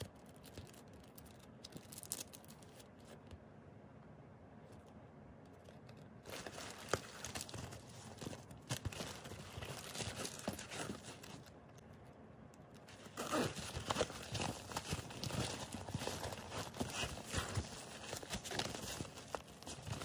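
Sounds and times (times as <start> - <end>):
small irregular clicks: 0.0 - 3.4, 9.7 - 13.2
plastic bag crinkling: 6.2 - 11.7, 12.7 - 20.0.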